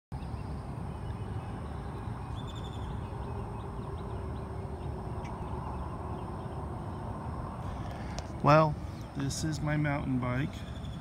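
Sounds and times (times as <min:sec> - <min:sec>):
faint bird chirps: 0:00.2 - 0:08.2
steady low rumble: 0:00.2 - 0:11.0.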